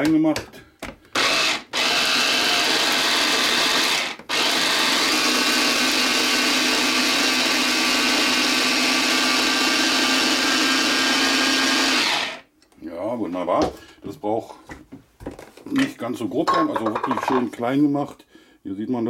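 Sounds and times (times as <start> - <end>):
electric food chopper running: 1.2 - 12.5.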